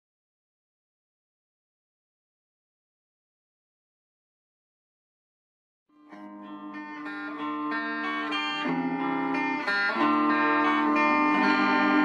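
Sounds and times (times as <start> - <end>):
electric guitar playing: 6.0 - 12.0.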